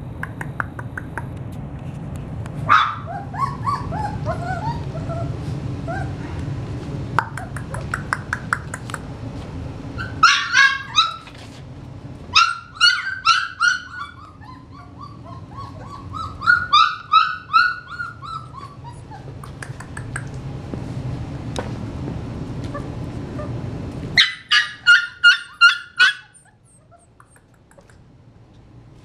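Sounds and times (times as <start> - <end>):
puppies yelping and whining: 2.7 - 6.3, 9.9 - 11.6, 12.3 - 19.6, 22.6 - 23.6, 24.2 - 27.9.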